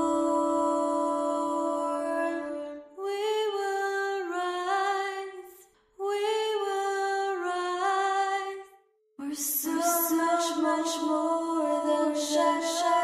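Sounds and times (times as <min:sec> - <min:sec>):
woman singing slowly: 0:09.2 - 0:13.0.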